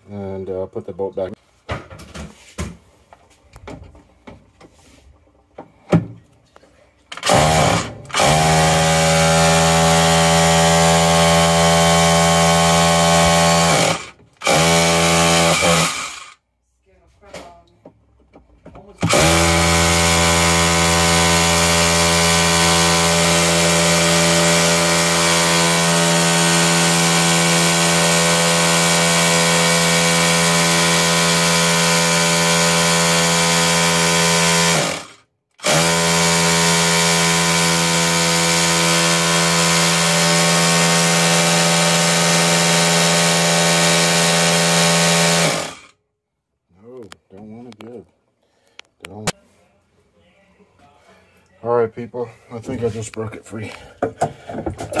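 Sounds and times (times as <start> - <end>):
hammer drill whining and rattling: 7.1 - 16.4, 19.0 - 46.0.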